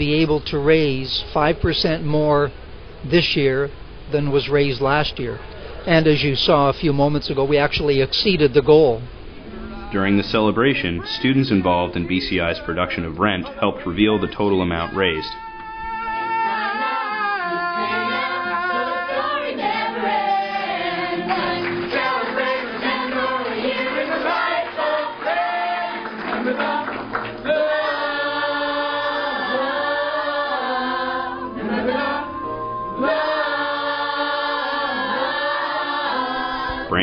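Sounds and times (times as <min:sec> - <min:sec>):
group singing in harmony: 0:15.5 - 0:36.9.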